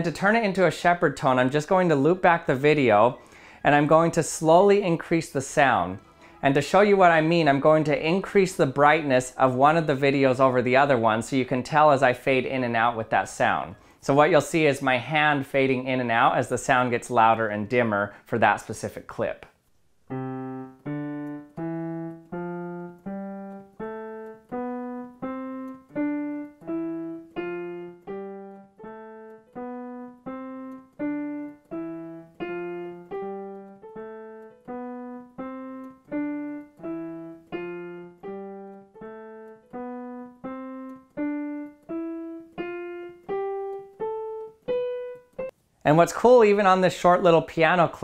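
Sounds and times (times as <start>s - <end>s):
digital piano rising notes: 20.0s - 45.6s.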